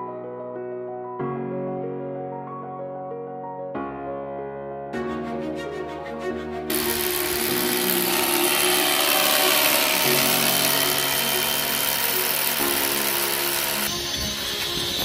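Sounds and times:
background music: 0:00.0 - 0:15.0
power tool running: 0:06.7 - 0:15.0.

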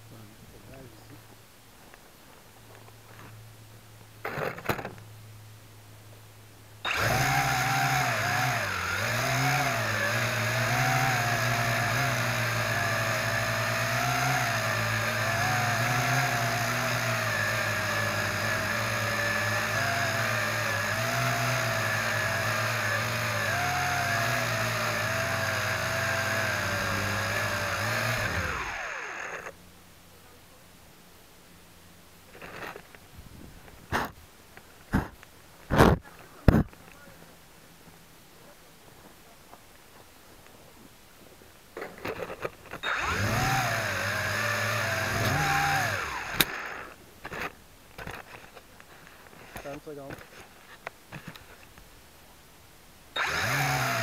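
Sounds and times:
drone propellers whirring: 0:06.8 - 0:29.5, 0:42.8 - 0:47.0, 0:53.2 - 0:54.0.

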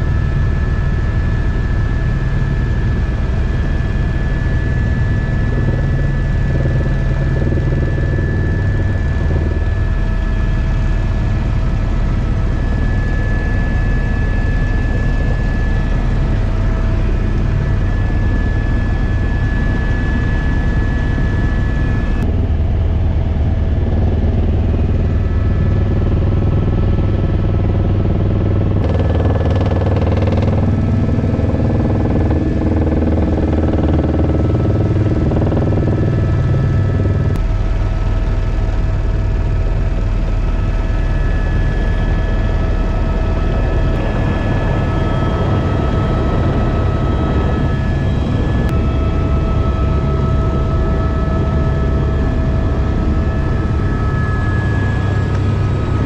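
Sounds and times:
helicopter turbine and rotor drone: 0:00.0 - 0:56.0.

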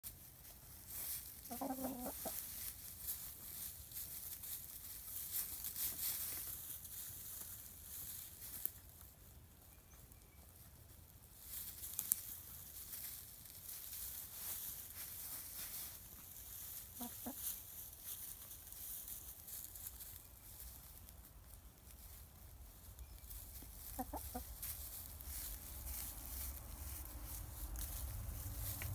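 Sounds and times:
hens scratching through straw: 0:00.0 - 0:28.9
hens clucking: 0:00.5 - 0:05.5, 0:13.8 - 0:20.6, 0:21.8 - 0:27.9.

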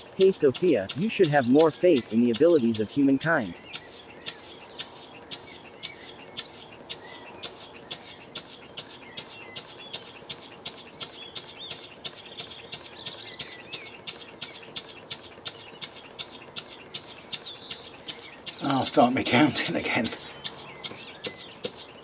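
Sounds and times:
model engine ticking: 0:00.0 - 0:22.0.

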